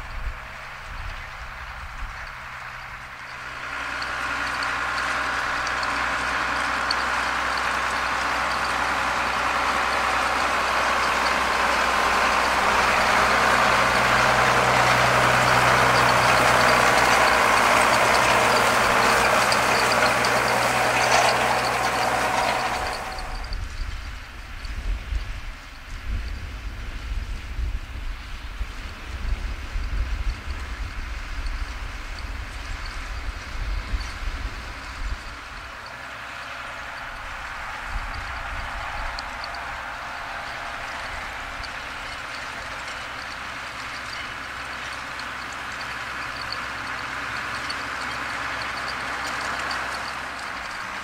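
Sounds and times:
tractor diesel engine running: 0.0 - 51.0
rotary grass rake: 3.0 - 23.6.

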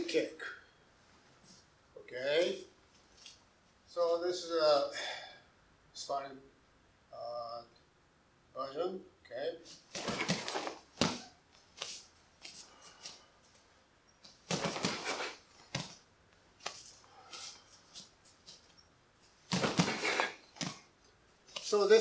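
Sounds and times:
uniform snapping and swishing: 9.7 - 13.2, 14.2 - 16.0, 16.6 - 20.9, 21.5 - 22.0
bare feet stepping on mat: 9.8 - 13.2, 14.2 - 16.0, 16.6 - 18.8, 19.4 - 20.9.

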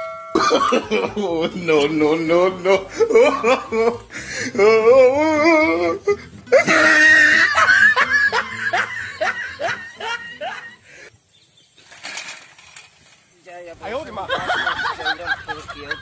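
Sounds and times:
person laughing heartily: 0.4 - 11.1, 14.2 - 16.0.

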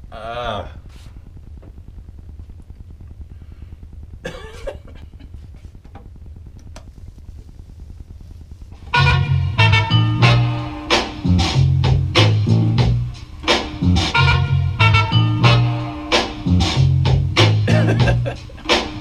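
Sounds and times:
low steady hum: 0.0 - 19.0
loud music from decks: 8.8 - 19.0.

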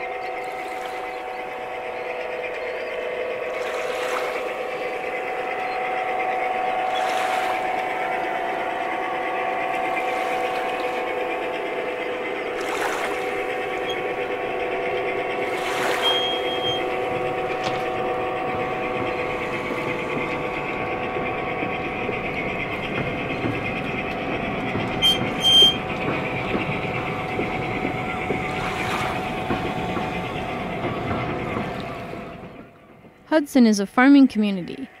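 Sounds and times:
model train mechanical drone: 0.0 - 35.0
short high tones: 15.8 - 17.8.

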